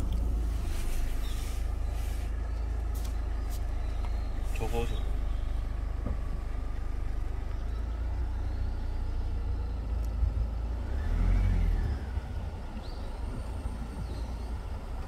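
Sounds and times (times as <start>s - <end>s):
car interior rumble: 0.0s - 15.0s.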